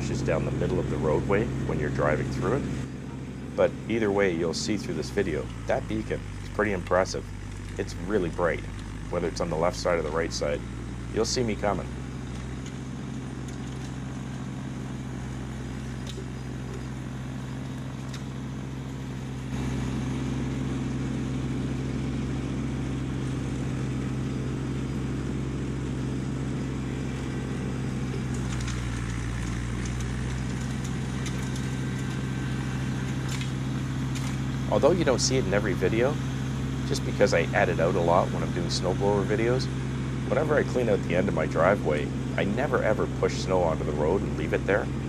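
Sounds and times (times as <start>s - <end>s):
tractor diesel engine droning: 0.0s - 45.0s
snowblower throwing snow: 25.9s - 45.0s.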